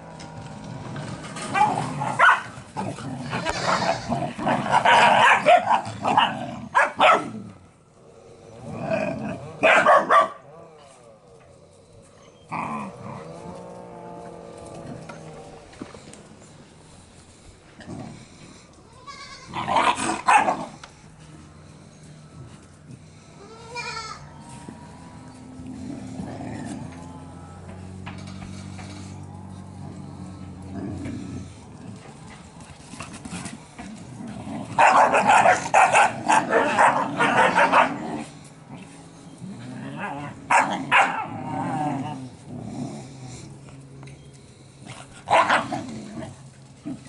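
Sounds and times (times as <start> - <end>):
puppies barking and yapping: 1.1 - 7.6, 9.5 - 10.6, 34.6 - 41.5, 43.3 - 47.0
low hum: 7.4 - 19.0, 20.2 - 37.2.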